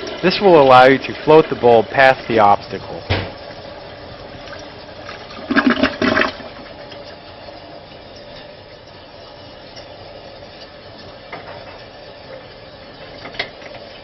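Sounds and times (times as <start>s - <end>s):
toilet flushing: 0.0s - 7.7s.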